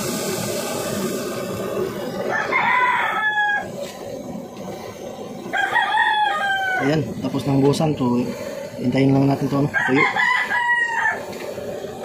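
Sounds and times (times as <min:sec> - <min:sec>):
steady hiss: 0:00.0 - 0:12.0
rooster crowing: 0:02.3 - 0:03.8, 0:05.5 - 0:07.0, 0:09.7 - 0:11.3.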